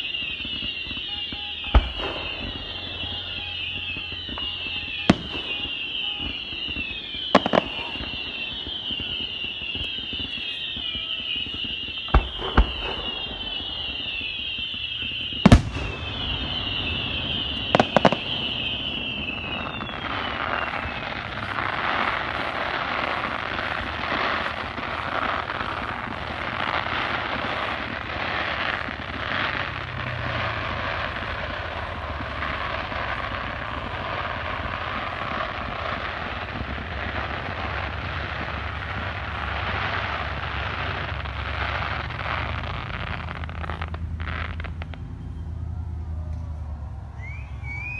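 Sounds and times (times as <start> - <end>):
fireworks bangs: 0.0 - 47.9.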